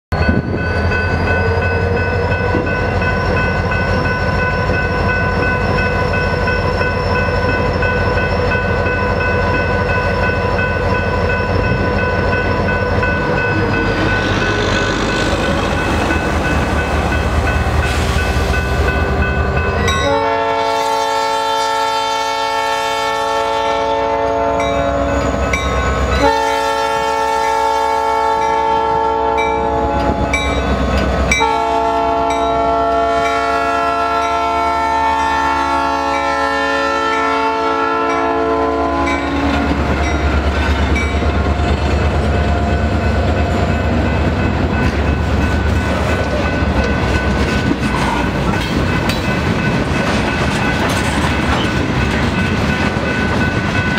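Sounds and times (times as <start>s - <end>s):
diesel locomotive rumble: 0.1s - 53.9s
train air horn blasts: 17.8s - 25.4s, 26.0s - 30.4s, 31.3s - 39.9s.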